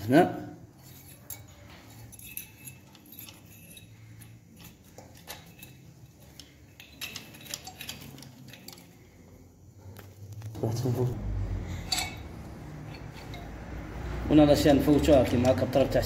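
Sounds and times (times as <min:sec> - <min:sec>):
chain rattling: 0:00.6 - 0:09.2, 0:11.6 - 0:15.5
light metallic clinks: 0:00.8 - 0:10.0, 0:11.7 - 0:14.0.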